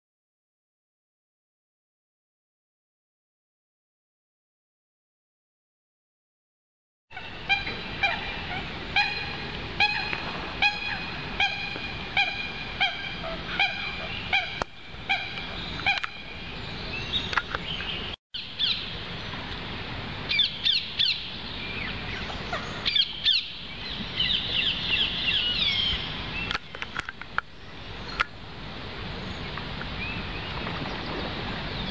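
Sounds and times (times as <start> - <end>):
waterfowl honking: 7.1 - 16.4.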